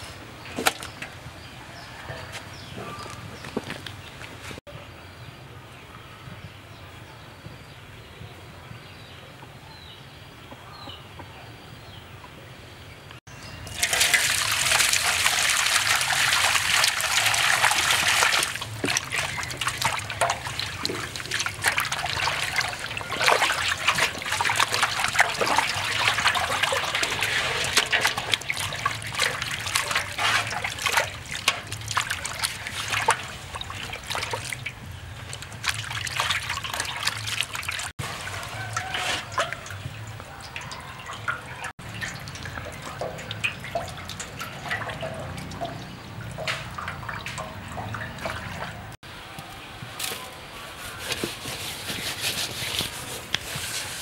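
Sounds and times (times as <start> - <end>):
water splashing and sloshing: 0.0 - 4.7, 13.4 - 49.3, 50.0 - 54.0
water pouring into metal basin: 13.6 - 49.0.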